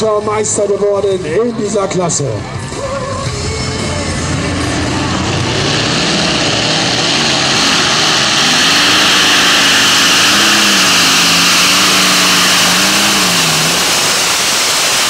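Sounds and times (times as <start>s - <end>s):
tractor engine running flat out: 3.2s - 15.0s.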